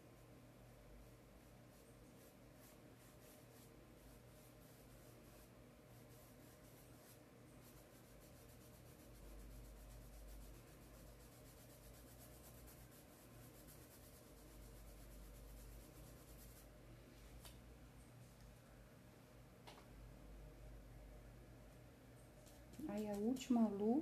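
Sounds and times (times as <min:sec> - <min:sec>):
low steady hum: 0:00.0 - 0:24.0
paintbrush scratching on cloth: 0:00.2 - 0:16.7.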